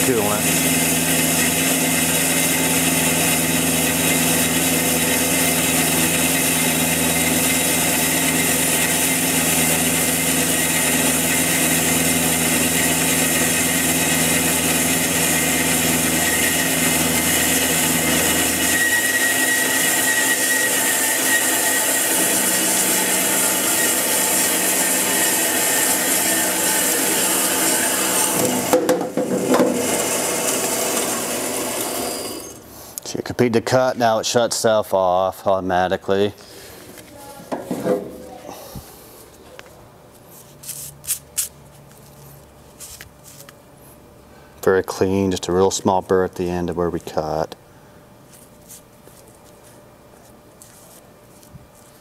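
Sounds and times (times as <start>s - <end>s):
band saw cutting metal bar: 0.0s - 32.7s.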